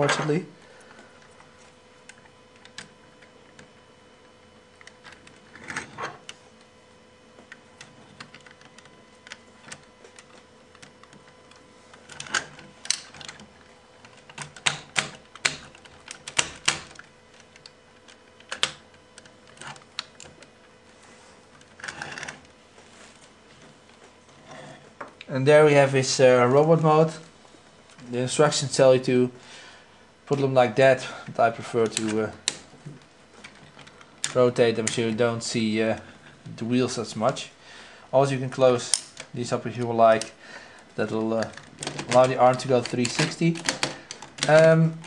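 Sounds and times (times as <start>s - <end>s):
toy parts clicking and snapping: 14.0s - 20.4s, 41.4s - 44.7s.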